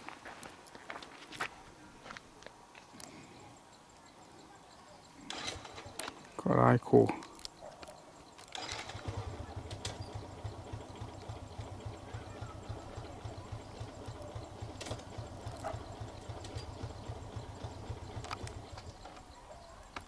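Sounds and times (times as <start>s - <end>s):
engine idling: 8.5s - 19.9s.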